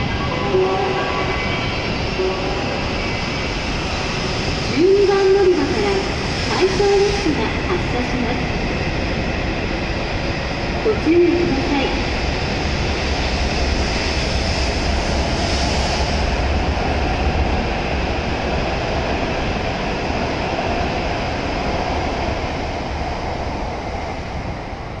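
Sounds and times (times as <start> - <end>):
train running past: 0.0 - 25.0.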